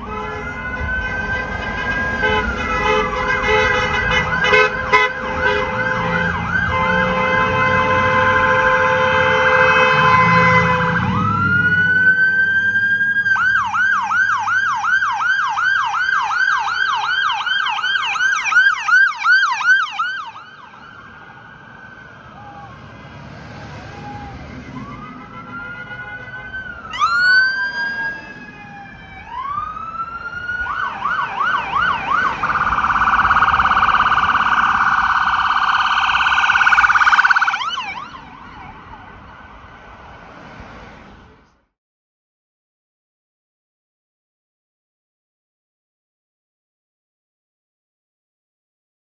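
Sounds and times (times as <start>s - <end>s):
vehicle horn tone: 0.0s - 11.1s, 25.2s - 26.5s
emergency vehicle siren wailing: 0.0s - 41.0s
traffic: 0.0s - 41.8s.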